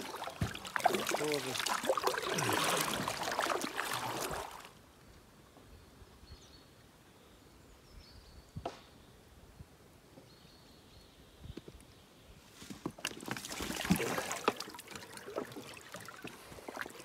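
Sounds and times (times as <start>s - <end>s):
water splashing around paddle: 0.0s - 4.8s, 12.7s - 17.0s
calm river ambience: 0.0s - 7.9s, 9.1s - 17.0s.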